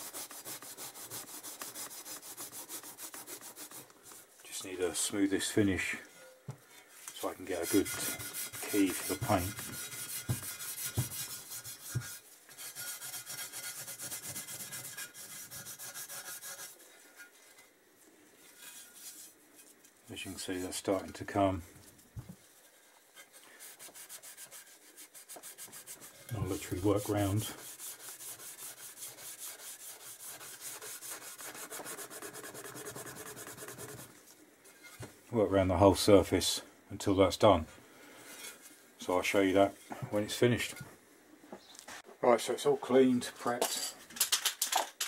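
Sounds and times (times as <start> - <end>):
abrasive pad scrubbing metal: 0.0 - 3.9, 7.2 - 16.9, 23.6 - 34.1.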